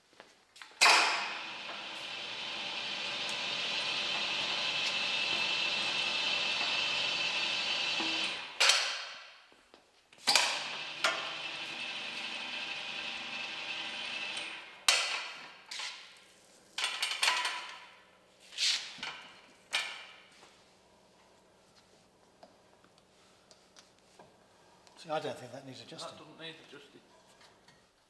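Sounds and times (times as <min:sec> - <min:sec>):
lift power unit running: 0:00.9 - 0:08.6, 0:10.4 - 0:14.8.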